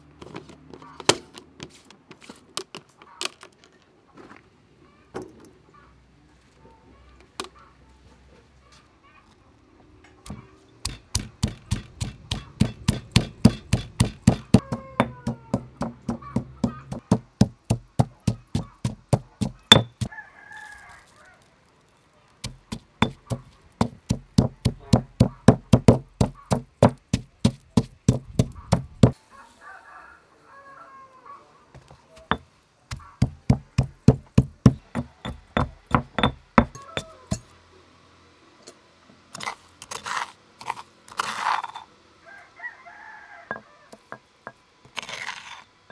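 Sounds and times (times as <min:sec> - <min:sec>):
stone pestle pounding in mortar: 0:10.8 - 0:20.1, 0:22.4 - 0:29.2, 0:32.3 - 0:37.4.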